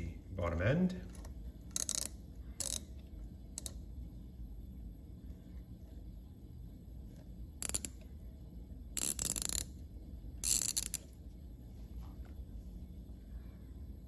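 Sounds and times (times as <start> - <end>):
ratcheting tap wrench clicking: 1.7 - 2.9, 3.6 - 3.8, 7.6 - 8.0, 9.0 - 9.7, 10.4 - 11.1.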